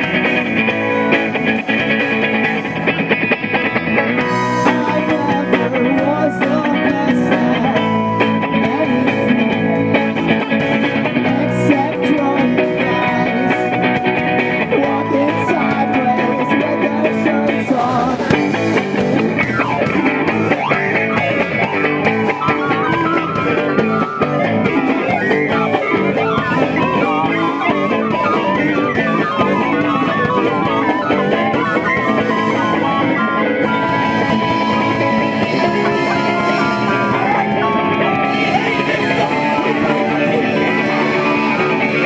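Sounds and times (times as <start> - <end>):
live rock band playing: 0.0 - 42.0
wavering melody line: 12.0 - 42.0.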